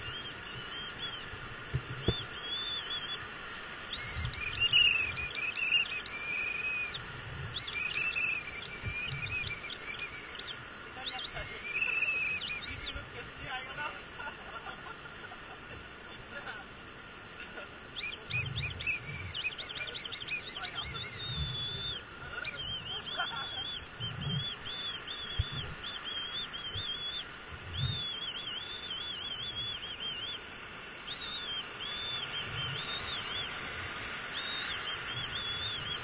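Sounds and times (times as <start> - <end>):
high warbling whistle-like call: 2.0 - 3.2, 3.9 - 13.1, 18.0 - 33.7, 34.3 - 36.0.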